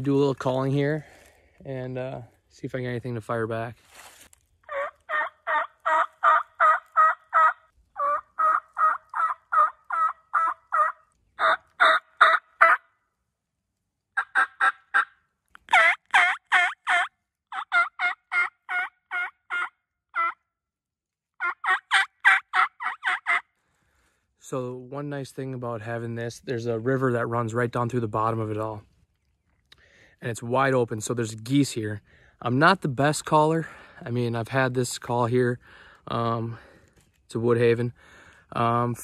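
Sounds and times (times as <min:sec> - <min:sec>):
turkey call yelps: 0:04.6 - 0:12.9, 0:14.2 - 0:20.4, 0:21.4 - 0:23.5.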